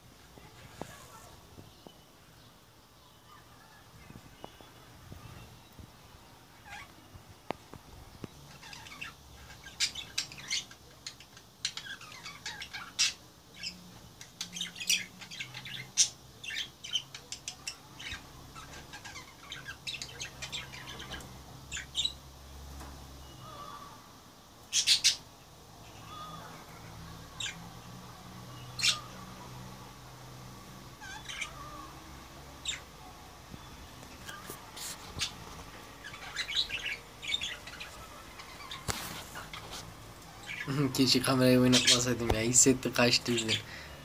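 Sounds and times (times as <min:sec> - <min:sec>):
budgerigars chirping: 0:08.5 - 0:22.2, 0:24.7 - 0:25.3, 0:28.6 - 0:29.3, 0:31.0 - 0:31.8, 0:33.6 - 0:39.8, 0:40.4 - 0:43.9
bird squawks: 0:28.7 - 0:29.3, 0:31.0 - 0:32.0.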